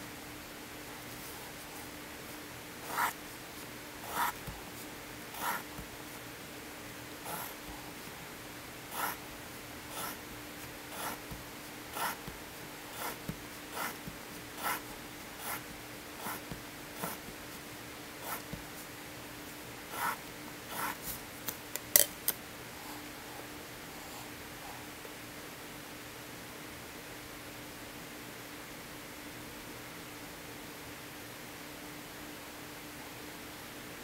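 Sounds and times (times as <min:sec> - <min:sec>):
pencil scratching along ruler: 0:02.8 - 0:03.2, 0:04.0 - 0:04.6, 0:05.3 - 0:05.9, 0:07.3 - 0:07.6, 0:08.9 - 0:09.2, 0:09.9 - 0:10.2, 0:10.9 - 0:17.3, 0:18.2 - 0:18.6, 0:19.9 - 0:21.2.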